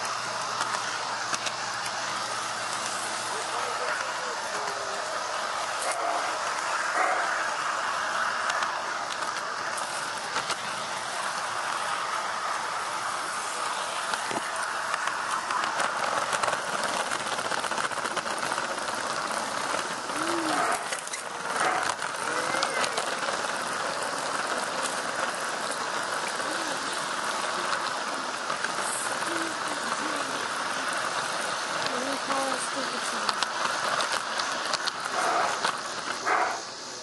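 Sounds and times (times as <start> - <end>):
model train rattling on track: 0.0 - 37.0
faint voices: 2.1 - 10.5, 19.6 - 33.8.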